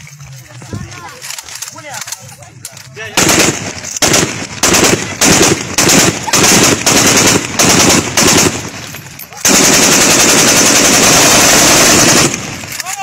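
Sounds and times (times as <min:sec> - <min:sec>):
automatic gunfire bursts: 0:03.1 - 0:08.8, 0:09.4 - 0:12.8.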